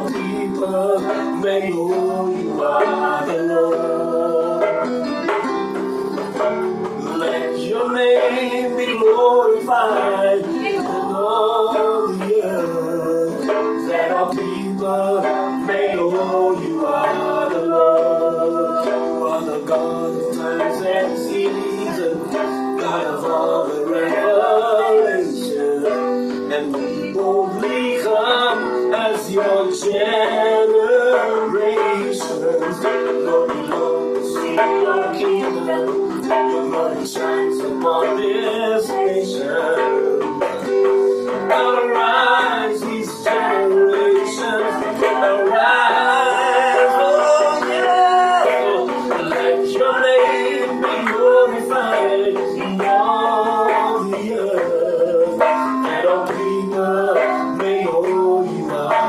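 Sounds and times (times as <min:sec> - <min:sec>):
man singing: 0:00.0 - 0:59.0.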